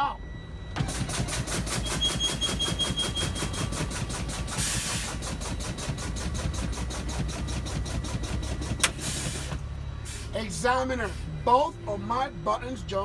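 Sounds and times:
truck warning alarm pulsing rapidly: 0:00.0 - 0:13.0
truck engine idling: 0:00.3 - 0:13.0
air brake hiss: 0:04.5 - 0:05.3, 0:08.9 - 0:10.4.

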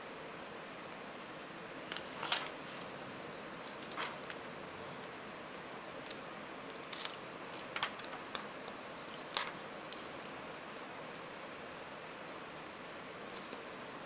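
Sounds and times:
steady hiss: 0:00.0 - 0:14.0
plastic sheet crinkling: 0:03.7 - 0:04.5, 0:06.8 - 0:10.0.

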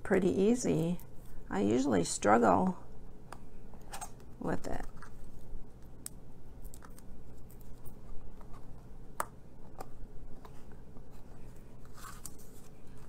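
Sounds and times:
paper rustling: 0:10.4 - 0:13.0.

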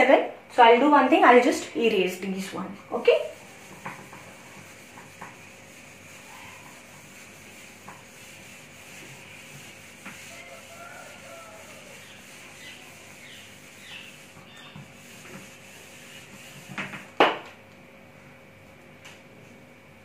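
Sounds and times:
duster rubbing on whiteboard: 0:01.3 - 0:17.2.

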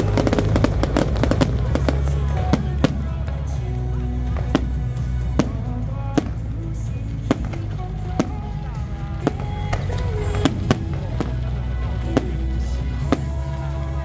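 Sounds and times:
background music with melody: 0:00.0 - 0:14.0
fireworks bangs: 0:00.0 - 0:14.0.

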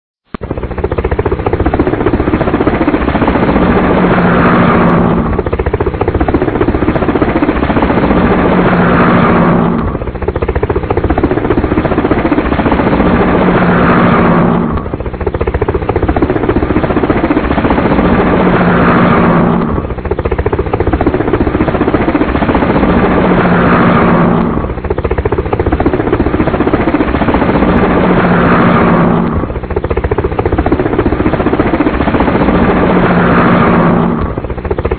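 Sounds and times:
helicopter rotor chop: 0:00.3 - 0:34.9
rising whine: 0:03.0 - 0:05.8, 0:06.9 - 0:10.0, 0:11.5 - 0:15.0, 0:17.2 - 0:20.0, 0:22.5 - 0:24.7, 0:27.0 - 0:29.5, 0:32.2 - 0:34.4.

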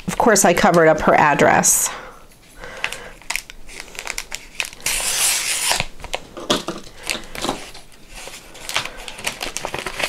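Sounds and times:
paper crinkling and rustling: 0:02.6 - 0:10.0
paper rasping: 0:04.8 - 0:05.8.

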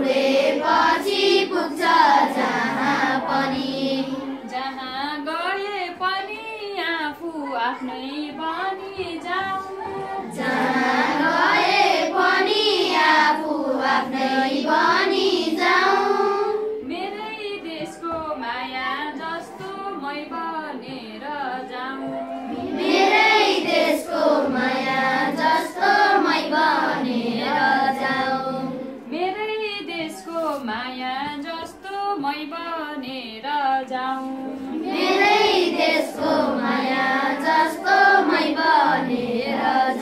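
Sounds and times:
children singing in unison: 0:00.0 - 0:04.7, 0:07.7 - 0:16.9, 0:21.4 - 0:29.2, 0:34.2 - 0:40.0.

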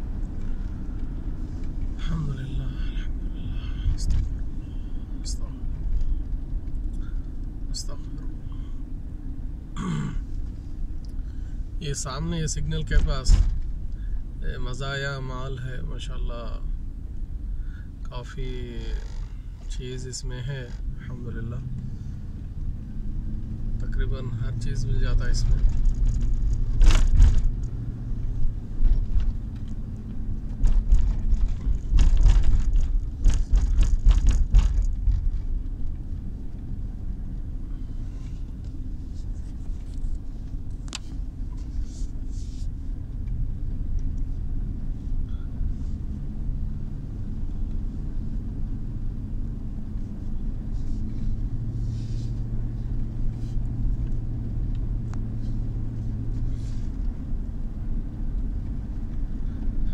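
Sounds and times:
engine and tyre rumble: 0:00.0 - 0:59.9
sharp knocks and rattles: 0:25.5 - 0:27.8, 0:28.4 - 0:36.0.

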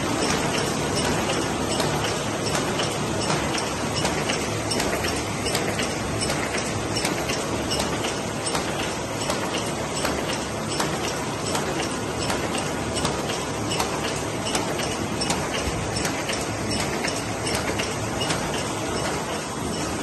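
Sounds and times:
sharp repeating click: 0:00.2 - 0:20.0.

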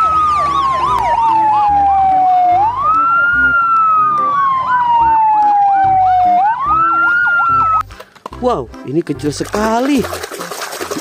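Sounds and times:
fire engine siren wailing: 0:00.0 - 0:07.8.

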